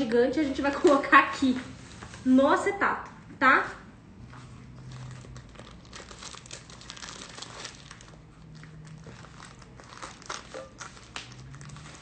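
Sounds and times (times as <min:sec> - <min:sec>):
plastic sheet crinkling: 0:04.8 - 0:12.0.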